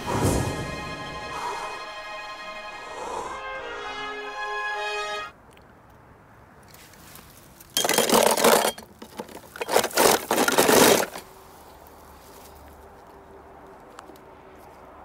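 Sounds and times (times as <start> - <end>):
toy cars rattling in plastic tub: 7.7 - 11.3.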